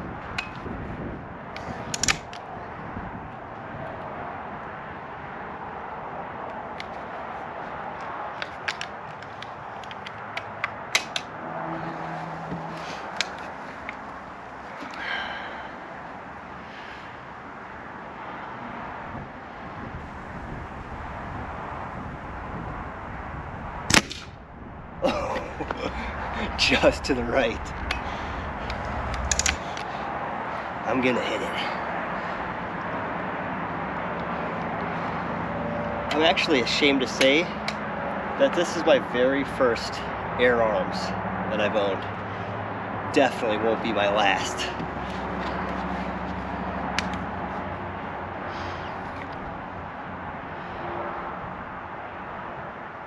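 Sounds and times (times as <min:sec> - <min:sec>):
outdoor background noise: 0:00.0 - 0:53.0
rifle cocking clicks: 0:01.9 - 0:02.4, 0:29.1 - 0:29.9
air rifle shot with ring: 0:23.9 - 0:24.4.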